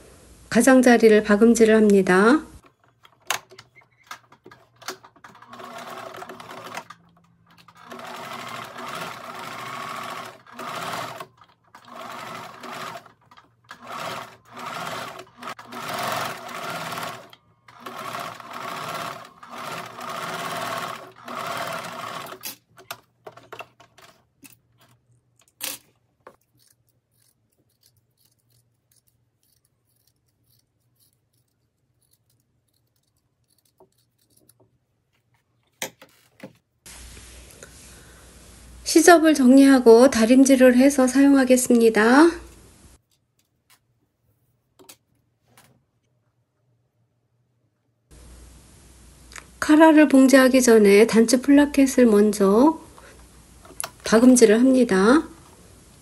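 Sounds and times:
sewing machine stitching: 3.3s - 24.2s.

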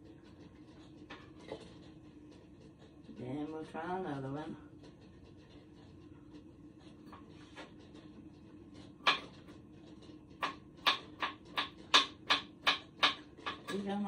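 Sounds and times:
knife chopping on cutting board: 9.0s - 9.4s, 10.4s - 13.7s.

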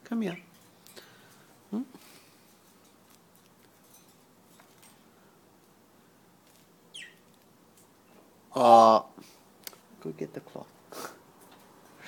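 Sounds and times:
parrot chirp: 6.9s - 7.3s.

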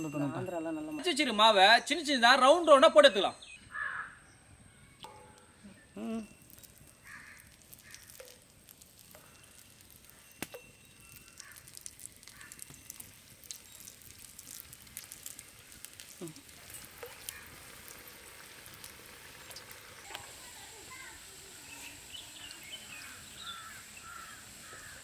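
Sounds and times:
batter sizzling in hot oil: 5.0s - 25.0s.

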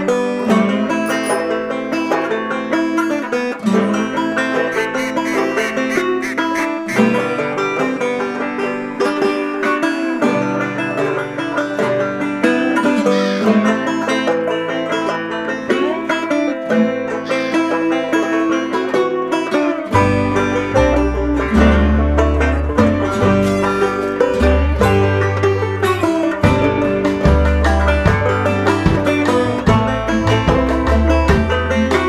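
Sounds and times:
upbeat plucked-string music: 0.0s - 32.0s
deep bass line: 20.0s - 32.0s.

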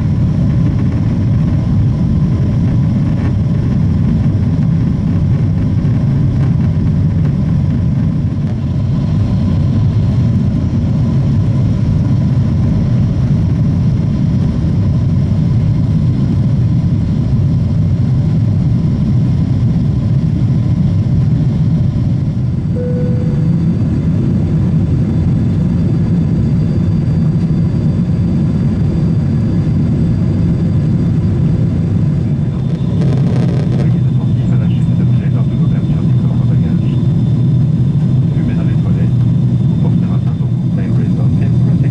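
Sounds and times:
airplane cabin engine roar: 0.0s - 41.9s
short faint tone: 22.7s - 23.9s.

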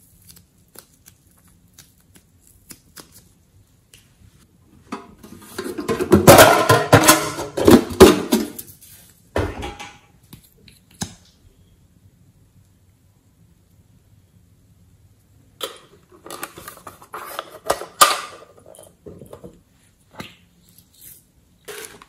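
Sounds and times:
metal tin clanking and rattling: 5.7s - 8.6s.

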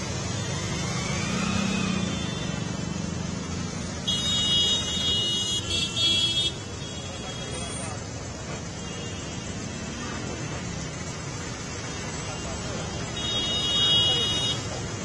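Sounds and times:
traffic engines running: 0.0s - 15.0s
vehicle horn blasts: 4.0s - 7.6s, 13.2s - 14.7s.

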